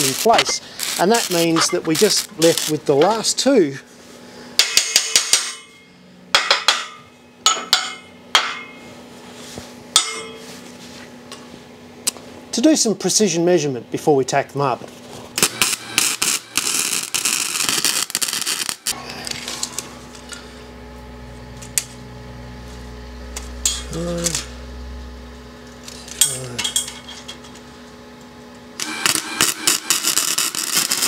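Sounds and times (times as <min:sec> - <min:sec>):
welding arc crackling: 0:00.0 - 0:03.5, 0:15.3 - 0:27.3, 0:28.8 - 0:31.0
welder low hum: 0:00.0 - 0:04.6, 0:15.1 - 0:31.0.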